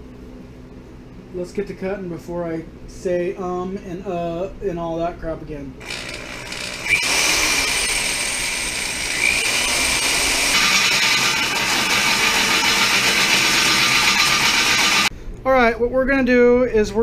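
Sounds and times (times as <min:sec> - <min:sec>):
drill hole saw cutting steel: 0:05.8 - 0:15.1.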